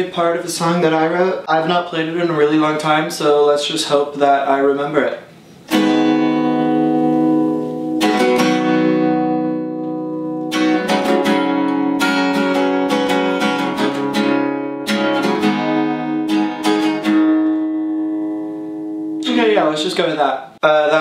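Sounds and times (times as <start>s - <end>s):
acoustic guitar strumming: 5.6s - 20.1s.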